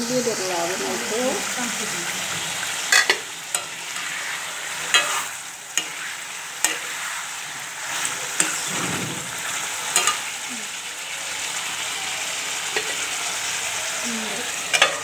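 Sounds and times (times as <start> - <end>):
curry sizzling: 0.0 - 15.0
metal ladle scraping pan: 2.3 - 10.4, 14.6 - 15.0.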